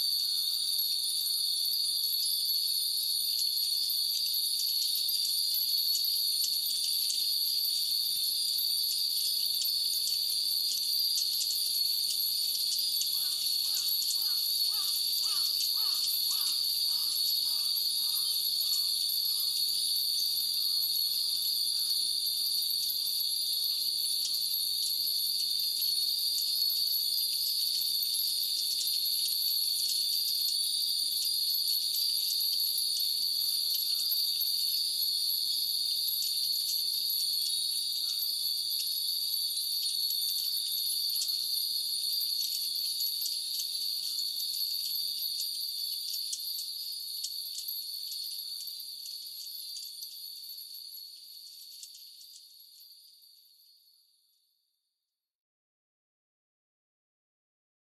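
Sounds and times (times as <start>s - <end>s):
high-pitched insect chorus: 0.0s - 54.4s
wind bells tinkling: 36.5s - 51.7s.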